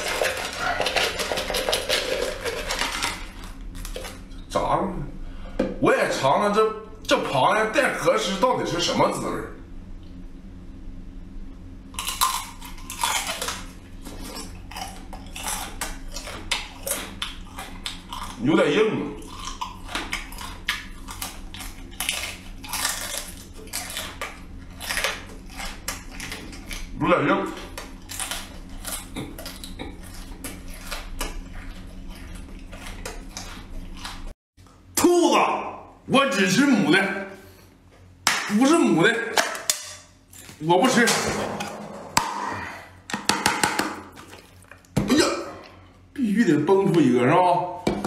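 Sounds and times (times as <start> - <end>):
crab shell crunching: 0.0 - 4.3, 11.9 - 18.4, 19.2 - 27.0.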